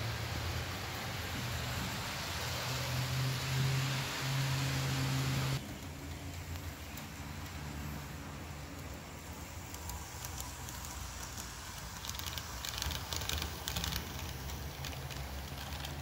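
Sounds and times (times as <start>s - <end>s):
model train running on track: 0.0s - 16.0s
wheels clicking on rails: 0.0s - 16.0s.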